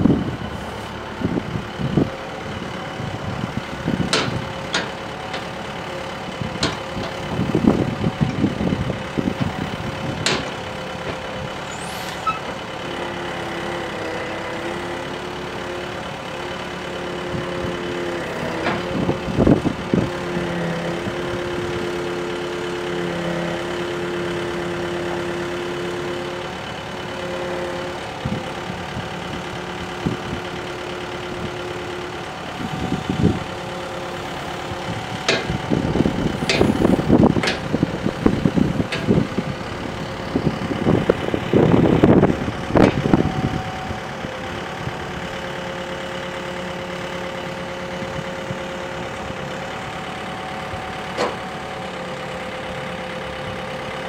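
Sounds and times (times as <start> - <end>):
excavator diesel engine running: 0.0 - 54.0
metal clanks and rattles: 4.0 - 5.6, 6.5 - 7.3, 9.4 - 11.2
hydraulic whine: 10.5 - 12.6.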